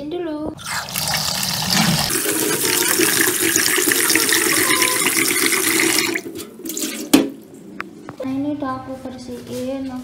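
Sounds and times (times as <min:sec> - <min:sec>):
tap water running into pot: 0:00.6 - 0:07.4.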